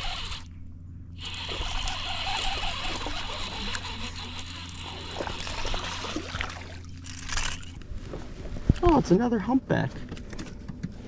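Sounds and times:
fishing reel cranking: 0.0 - 0.5, 1.2 - 7.8
low hum and hiss: 0.0 - 11.0
fish splashing at surface: 4.7 - 7.7.

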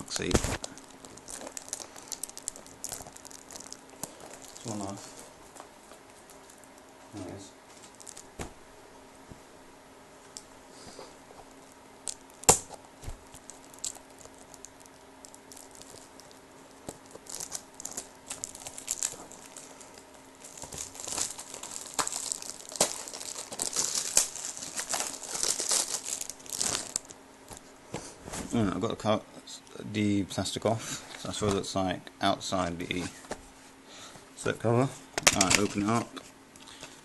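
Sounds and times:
plastic wrap crinkling and tearing: 0.0 - 7.0, 7.8 - 8.5, 11.6 - 27.6.

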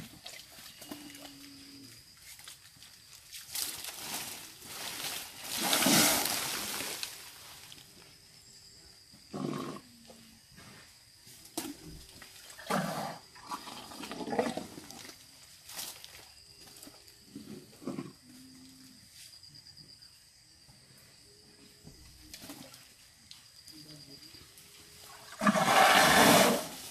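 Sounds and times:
elephants splashing water: 5.5 - 6.8, 25.2 - 26.9.

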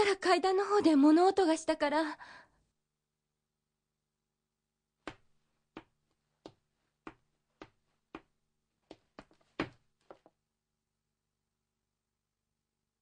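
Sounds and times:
footsteps: 5.0 - 10.3.

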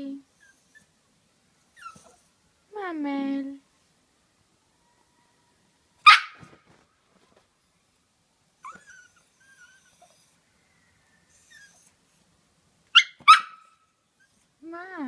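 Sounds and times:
dog whining: 0.3 - 1.0, 1.7 - 2.4, 8.6 - 10.4, 11.2 - 12.0
dog barking sharply: 6.0 - 6.6, 13.0 - 13.8.

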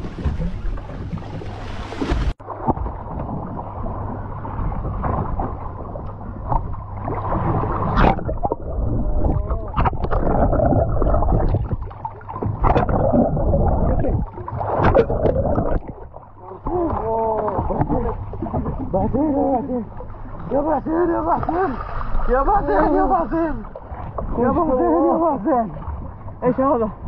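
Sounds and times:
muffled underwater churning water: 0.0 - 27.0
underwater clicks: 7.9 - 18.1.

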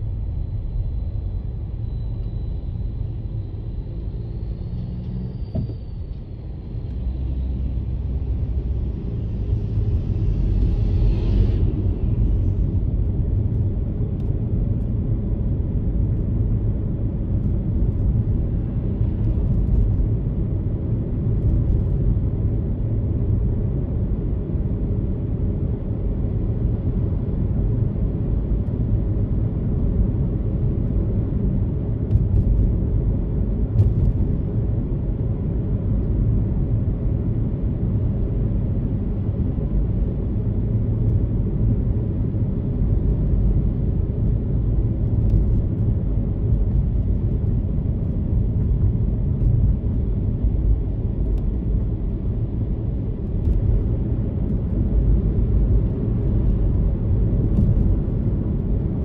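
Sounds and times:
car driving rumble: 28.4 - 59.0.

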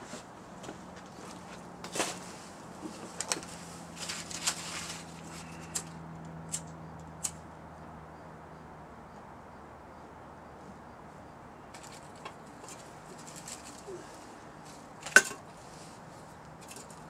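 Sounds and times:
twigs and leaves rustling: 1.0 - 6.7, 11.7 - 17.0.

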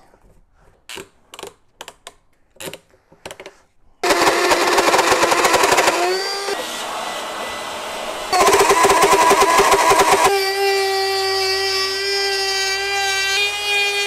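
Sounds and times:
electric router whining cutting wood: 4.0 - 14.0.

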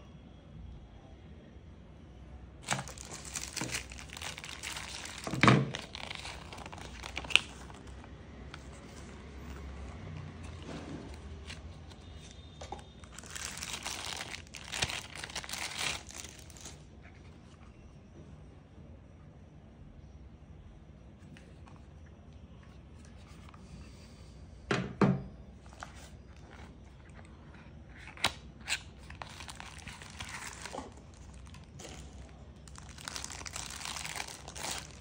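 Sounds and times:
plastic and paper crinkling: 2.6 - 17.5, 25.6 - 35.0.

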